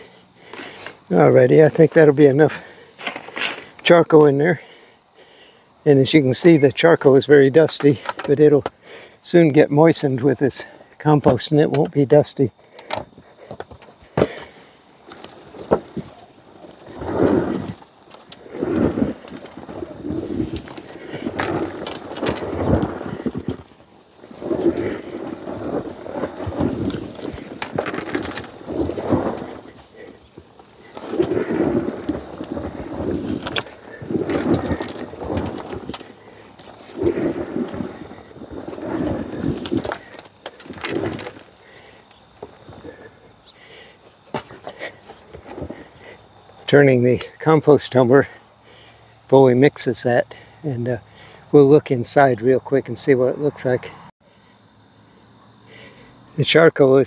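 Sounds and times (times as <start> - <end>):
compost tumbler drum rumbling: 0.0 - 53.1.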